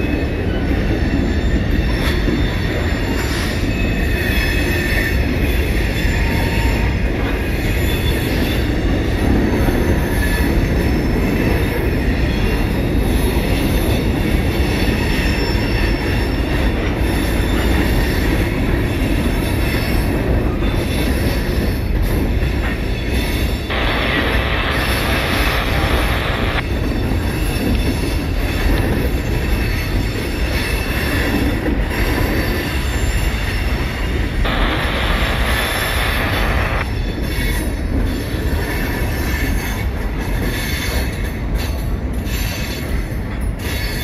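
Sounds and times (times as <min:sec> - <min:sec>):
high-pitched wheel squeal: 0:00.0 - 0:08.8
train wheels rumbling on rail: 0:00.0 - 0:44.0.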